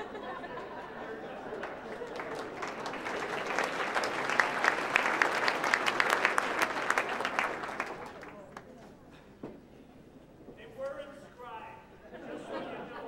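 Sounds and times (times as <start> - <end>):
audience applauding: 1.1 - 8.7.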